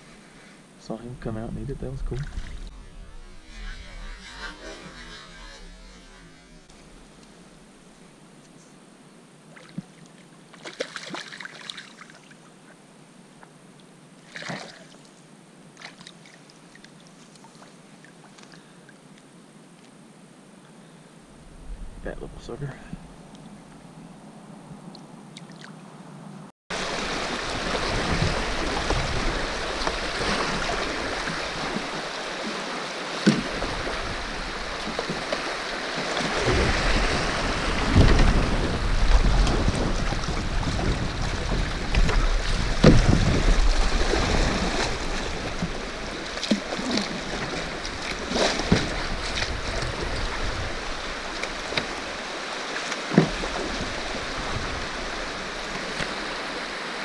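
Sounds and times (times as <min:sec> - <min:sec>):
wind rumbling on microphone: 0:01.0 - 0:07.9, 0:21.3 - 0:25.2, 0:26.3 - 0:32.4, 0:33.3 - 0:52.2, 0:53.2 - 0:56.8
paddle knocks and splashes: 0:26.7 - 0:52.2, 0:52.8 - 0:56.3.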